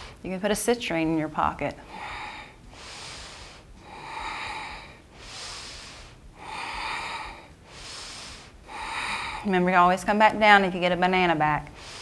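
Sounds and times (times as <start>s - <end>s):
woman breathing through throat: 1.8s - 9.5s, 11.7s - 12.0s.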